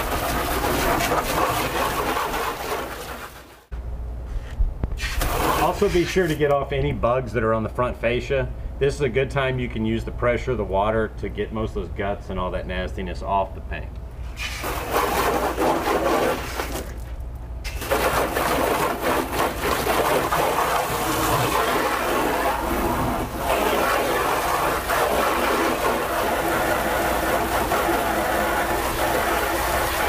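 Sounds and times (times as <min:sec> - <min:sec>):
hose water jet spattering on car: 0:00.0 - 0:03.7, 0:05.0 - 0:06.4, 0:14.3 - 0:30.0.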